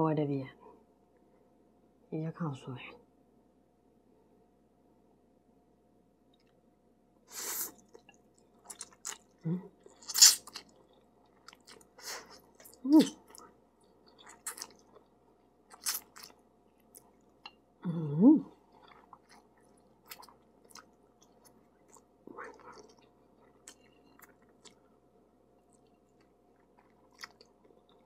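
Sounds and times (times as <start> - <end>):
slurping and chewing: 7.3 - 17.6, 18.6 - 24.9, 25.7 - 28.0.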